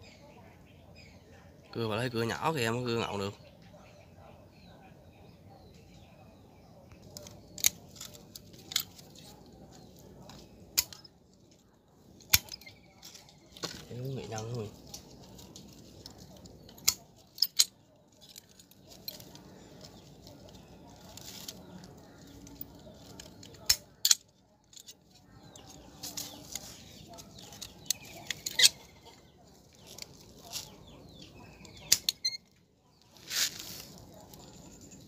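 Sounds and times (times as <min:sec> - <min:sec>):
handling dry roots: 0:06.9 - 0:35.0
pruning shears snipping: 0:12.2 - 0:17.7.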